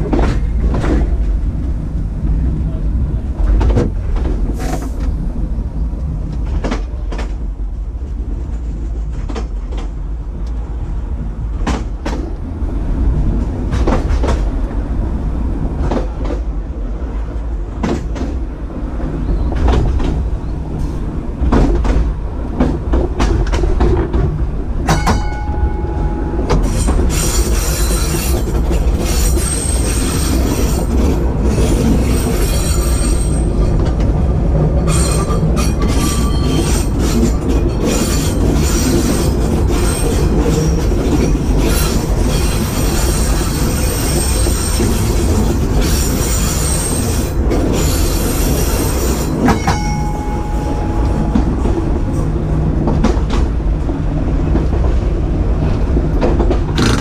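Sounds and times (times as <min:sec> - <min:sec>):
tram clicking over rails: 0:00.0 - 0:57.0
short ringing tone: 0:25.0 - 0:26.5, 0:49.5 - 0:52.2.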